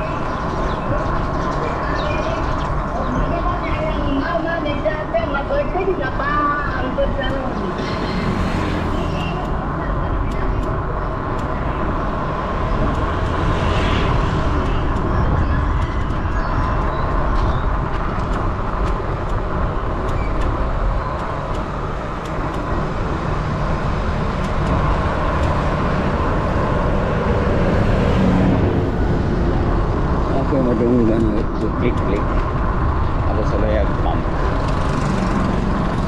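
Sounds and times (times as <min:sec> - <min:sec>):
bus passing: 0:00.0 - 0:36.0
low road rumble: 0:00.0 - 0:36.0
wind rushing over microphone: 0:00.0 - 0:36.0.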